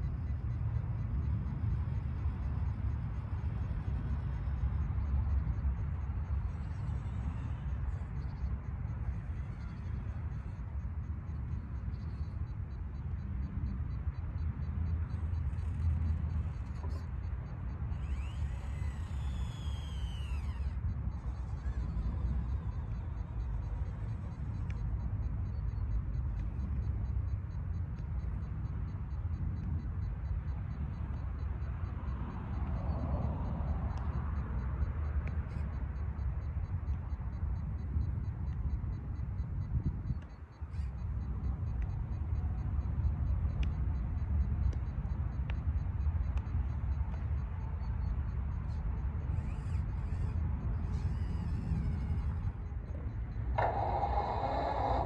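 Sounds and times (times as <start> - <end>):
faint quick ticking: 15.0 - 55.0
faint clicks: 32.6 - 55.0
engine idling rumble: 49.3 - 55.0.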